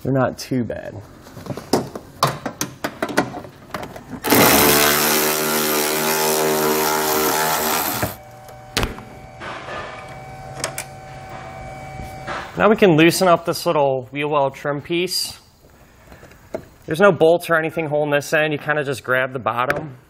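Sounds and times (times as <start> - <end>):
power ratchet running: 4.2 - 8.2.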